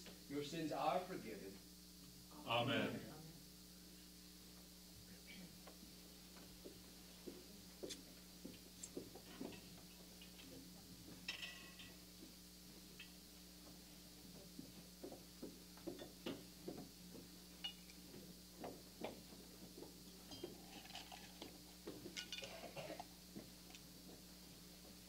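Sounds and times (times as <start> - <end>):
steady low hum: 0.0 - 25.0
footsteps and shuffles: 5.6 - 11.3, 18.0 - 20.6.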